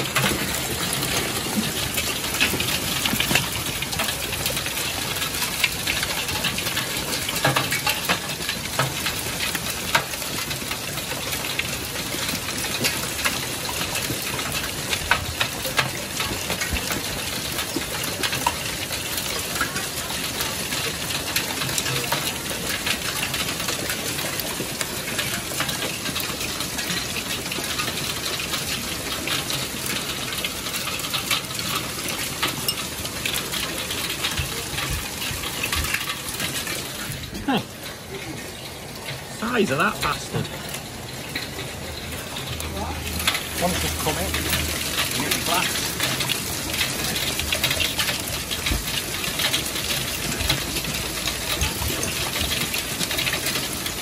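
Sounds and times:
hail and rain hissing: 0:00.0 - 0:54.0
hailstones ticking on gravel: 0:00.0 - 0:54.0.

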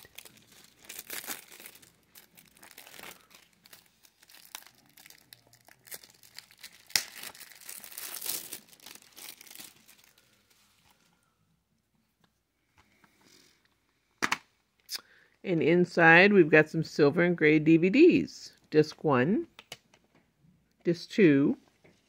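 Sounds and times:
plastic shrink-wrap crinkling: 0:00.0 - 0:11.1.

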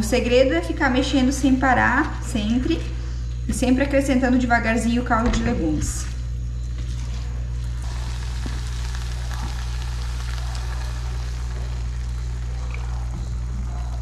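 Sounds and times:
low hum: 0:06.1 - 0:14.0
rice sizzling in a pan: 0:07.7 - 0:14.0.

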